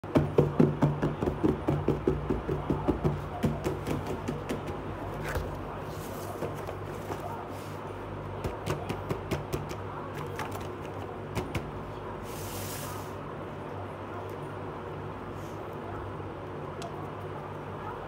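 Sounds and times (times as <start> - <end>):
cardboard box being handled: 5.1 - 7.8.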